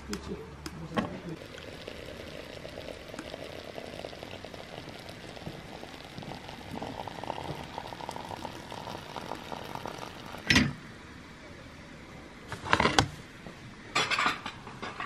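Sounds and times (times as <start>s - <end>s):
water trickling into teapot: 1.4s - 10.5s.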